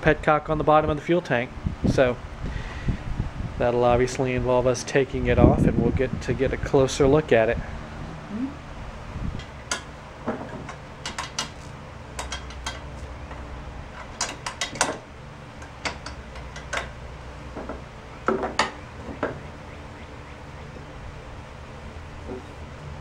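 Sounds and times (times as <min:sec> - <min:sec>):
hand tools clinking on metal: 0:10.7 - 0:13.0.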